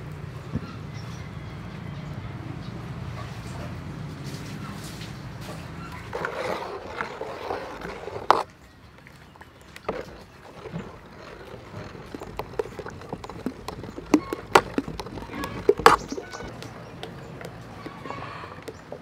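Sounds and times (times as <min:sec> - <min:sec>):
ladle stirring batter in metal bowl: 0:05.9 - 0:08.5, 0:09.6 - 0:19.0.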